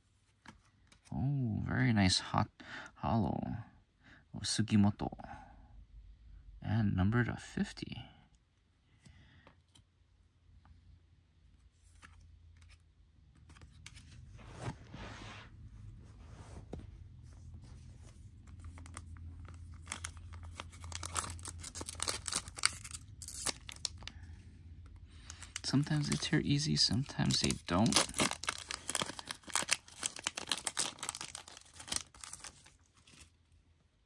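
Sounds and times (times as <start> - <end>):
wrapper crinkling and ripping: 18.5 - 24.1, 25.2 - 33.4.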